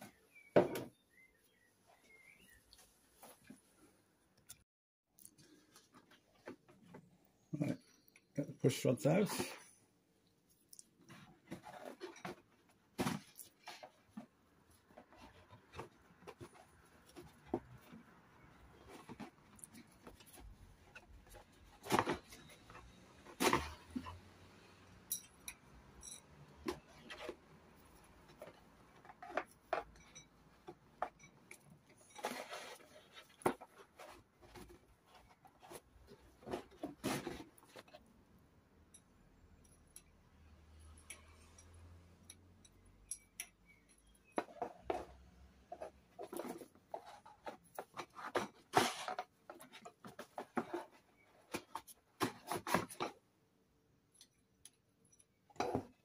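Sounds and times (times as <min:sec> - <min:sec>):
cardboard rustling: 0:32.0 - 0:38.0, 0:44.4 - 0:53.2
light metal clicks and scrapes: 0:38.8 - 0:53.2.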